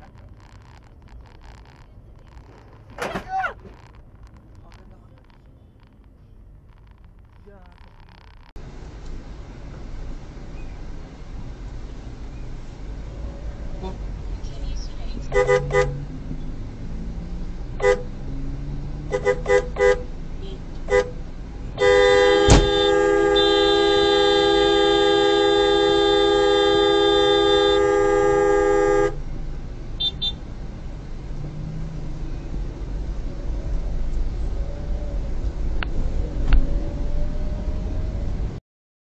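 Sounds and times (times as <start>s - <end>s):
low traffic rumble: 0.0s - 38.6s
car horn honking: 15.3s - 16.0s, 17.8s - 18.2s, 19.1s - 21.2s, 21.8s - 29.2s, 30.0s - 30.4s
sharp knock: 22.5s - 22.8s.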